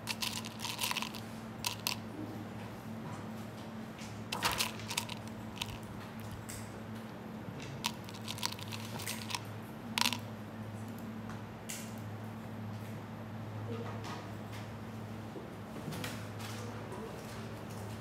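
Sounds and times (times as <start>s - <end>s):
steady low hum: 0.0s - 11.2s.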